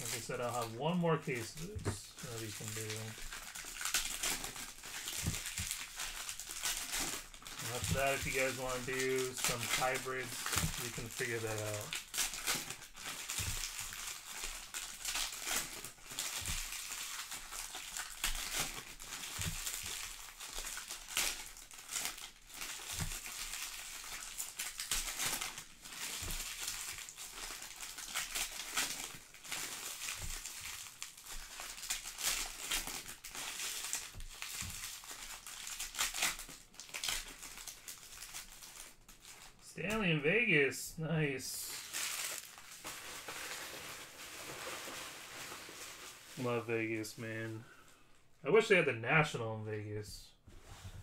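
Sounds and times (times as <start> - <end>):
packs ripped open: 0.0 - 39.4
foil wrappers crinkling: 0.0 - 40.6, 41.2 - 48.0.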